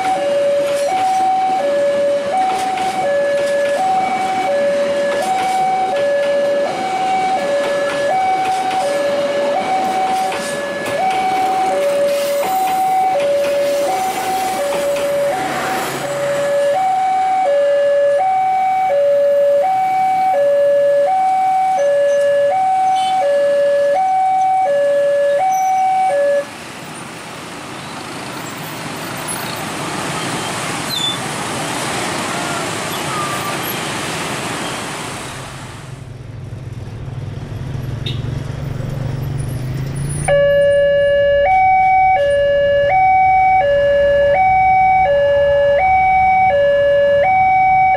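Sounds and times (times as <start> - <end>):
two-tone crossing alarm: 0.0 - 26.5, 40.2 - 47.9
train running on rails: 0.0 - 40.4.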